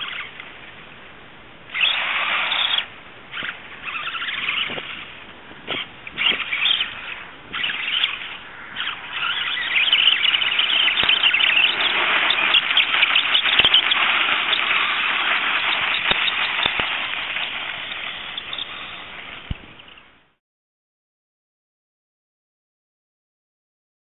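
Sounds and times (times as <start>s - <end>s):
toy car motor whine: 0.0s - 0.3s, 1.7s - 5.1s, 5.7s - 19.9s
tyres spinning in dirt: 8.8s - 19.9s.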